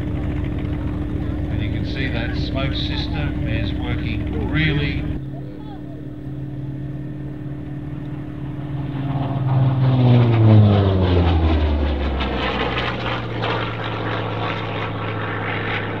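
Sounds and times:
propeller plane engine fly-past: 0.0 - 16.0.

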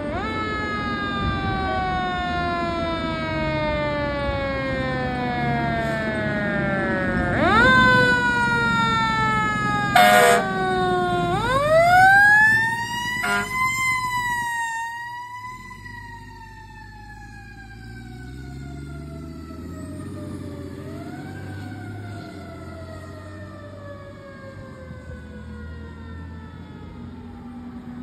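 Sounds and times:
truck engine rumbling: 0.0 - 28.0
air horn blast: 9.9 - 10.6, 13.2 - 13.8.

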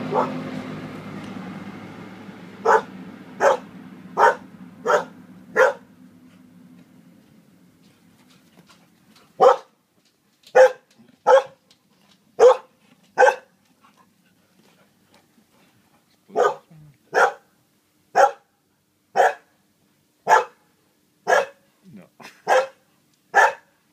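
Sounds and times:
dog barking: 0.1 - 0.4, 2.6 - 5.9, 9.4 - 9.7, 10.5 - 11.6, 12.4 - 13.5, 16.3 - 17.5, 18.2 - 18.5, 19.2 - 19.5, 20.3 - 20.6, 21.3 - 21.6, 22.5 - 23.7.

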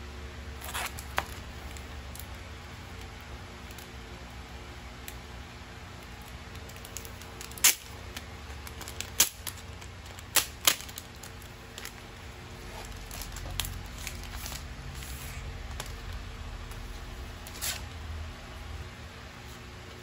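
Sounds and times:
plastic film crackling: 0.5 - 4.2, 6.0 - 18.8
plastic and paper rustling: 6.1 - 18.1.

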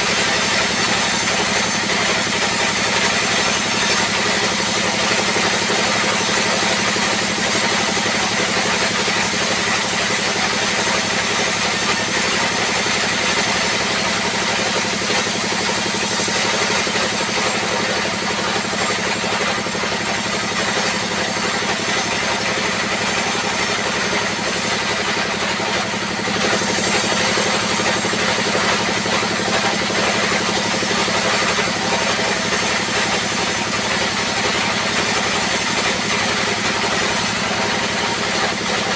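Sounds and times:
circular saw cutting wood: 0.0 - 38.9.

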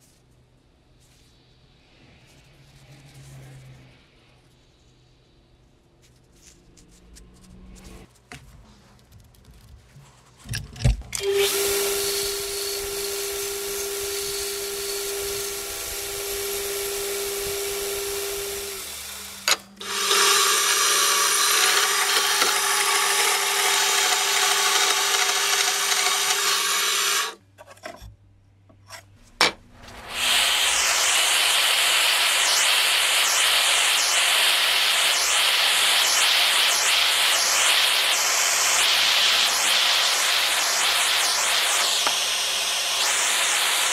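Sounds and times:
power sander on steel: 11.2 - 27.4, 29.9 - 43.9.

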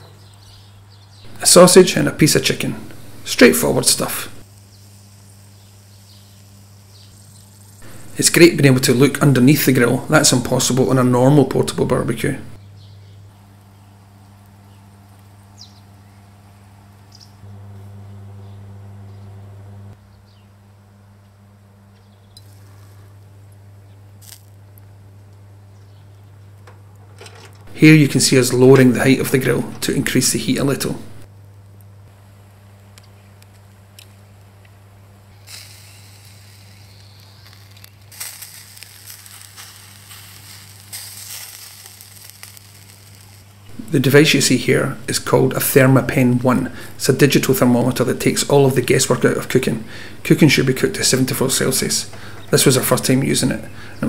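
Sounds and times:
charcoal crackles: 0.2 - 17.4, 22.4 - 54.0
low hum: 1.3 - 4.4, 7.8 - 12.6, 27.7 - 31.3, 43.7 - 54.0
meat sizzling on a grill: 2.4 - 10.7, 22.4 - 23.3, 24.1 - 24.8, 35.3 - 45.6
tongs turning meat: 36.7 - 45.5
faint bird chirps: 36.8 - 37.6.

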